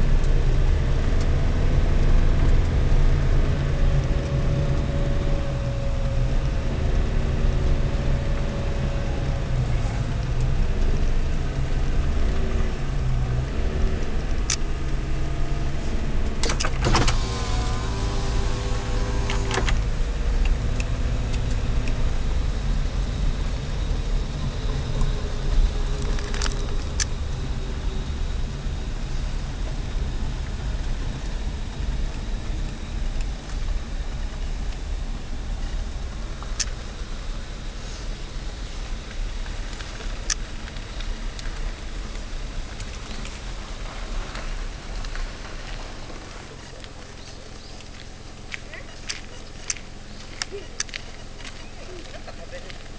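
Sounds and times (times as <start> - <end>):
car engine and road rumble: 0.0 - 52.9
clatter of clicks and squeaks: 25.9 - 27.1.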